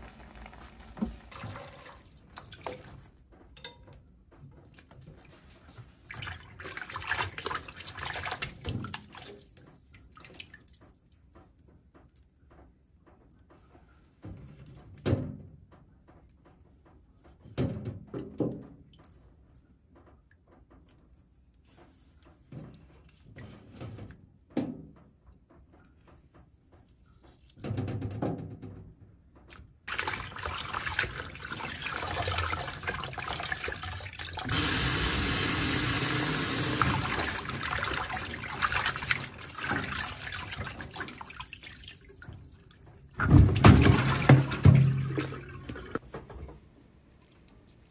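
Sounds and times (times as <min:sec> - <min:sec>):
water dripping: 0:00.1 - 0:12.2, 0:29.5 - 0:46.0, 0:47.1 - 0:47.9
kitchen tap running: 0:29.9 - 0:42.5, 0:43.2 - 0:46.0.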